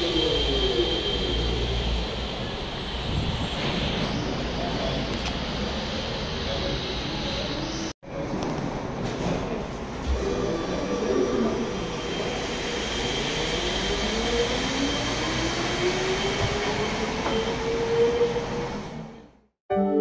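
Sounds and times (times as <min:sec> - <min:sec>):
music: 0:19.7 - 0:20.0
steady high tone: 0:19.7 - 0:20.0.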